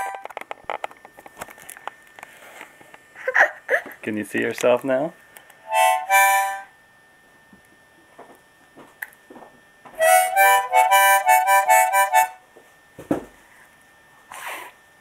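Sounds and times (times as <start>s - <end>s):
harmonica chords: 0.0s - 0.3s, 5.6s - 6.8s, 10.0s - 12.5s.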